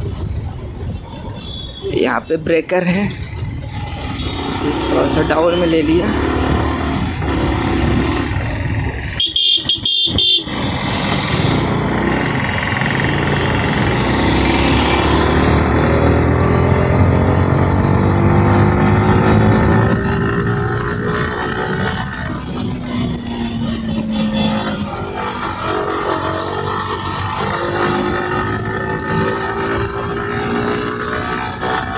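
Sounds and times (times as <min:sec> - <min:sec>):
wind on microphone: 0:00.0 - 0:02.3, 0:06.0 - 0:31.9
motorcycle engine accelerating: 0:03.2 - 0:31.9
horn short beeps: 0:09.2 - 0:10.5.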